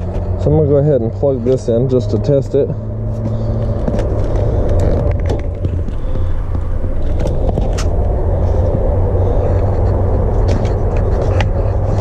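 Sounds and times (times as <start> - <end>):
diesel engine idling: 0.0 - 12.0
clicks and rattles of cords: 3.2 - 8.8, 9.4 - 12.0.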